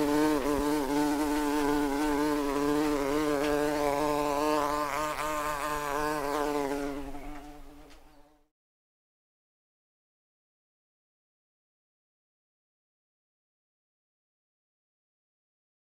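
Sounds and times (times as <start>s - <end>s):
wasps buzzing: 0.0s - 7.9s.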